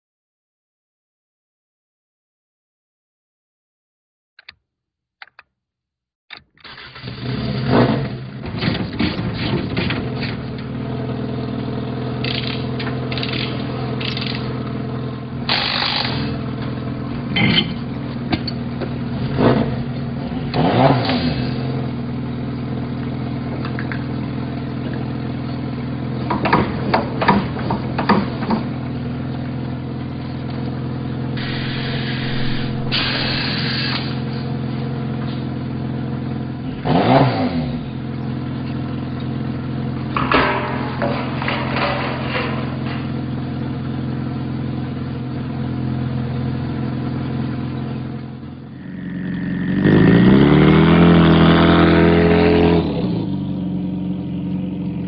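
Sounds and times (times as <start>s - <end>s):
switch clicks: 4.4s - 4.6s
car engine idling: 10.0s - 20.6s, 21.5s - 36.8s, 37.8s - 52.3s.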